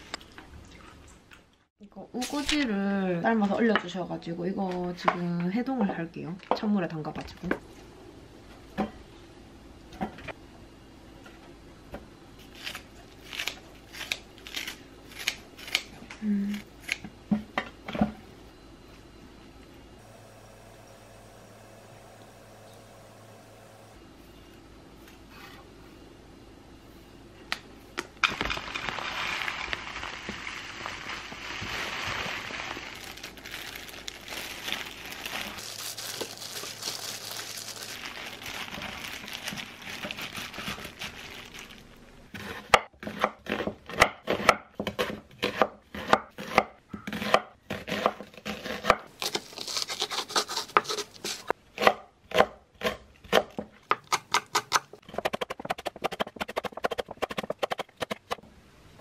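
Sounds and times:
gloved hand mixing greens: 29.4s - 41.8s.

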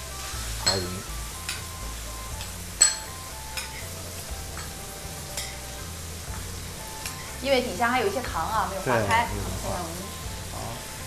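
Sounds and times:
food sizzling in a wok: 0.0s - 11.0s
metal ladle clinking against wok: 2.8s - 3.9s.

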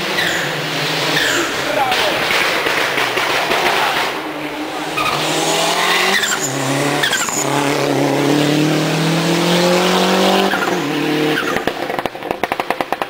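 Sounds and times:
rally car engine accelerating: 0.0s - 13.0s
rapid exhaust pops: 1.6s - 4.2s, 11.4s - 13.0s.

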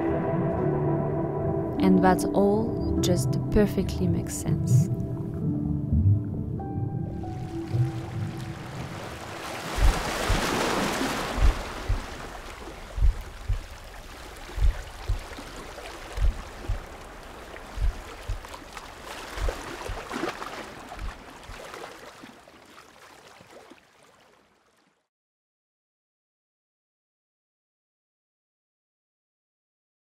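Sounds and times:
small waves lapping: 7.2s - 25.1s
water thumping against camera: 7.8s - 22.1s.

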